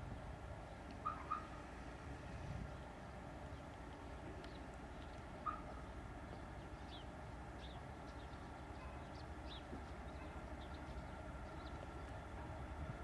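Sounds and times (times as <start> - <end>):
distant diesel locomotive drone: 0.0 - 13.0
small birds chirping: 2.7 - 12.4.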